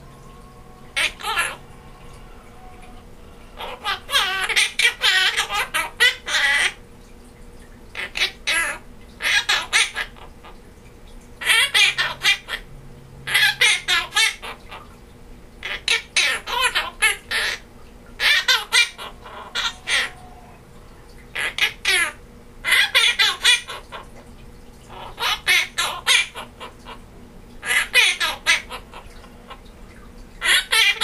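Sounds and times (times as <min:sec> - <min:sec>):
parrot mimicking: 0:00.0 - 0:06.8, 0:07.9 - 0:10.6, 0:11.4 - 0:12.7, 0:13.3 - 0:15.0, 0:15.6 - 0:29.8, 0:30.4 - 0:31.0
parrot laughter-like sounds: 0:01.0 - 0:01.7, 0:03.6 - 0:06.8, 0:18.2 - 0:20.6, 0:21.4 - 0:24.0, 0:24.9 - 0:27.0, 0:27.6 - 0:29.6, 0:30.4 - 0:31.0.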